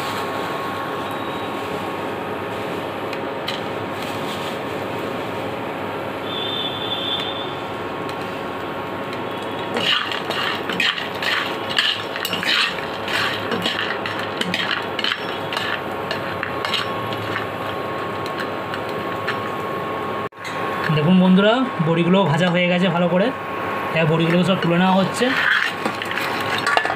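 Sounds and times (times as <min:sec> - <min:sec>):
food sizzling in oil: 0:08.2 - 0:19.5
spatula clinking and scraping pan: 0:09.5 - 0:19.5, 0:24.3 - 0:26.9.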